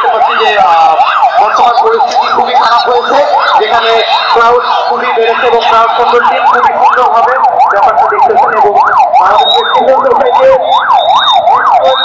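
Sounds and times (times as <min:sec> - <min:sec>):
electronic siren yelping: 0:00.0 - 0:12.0.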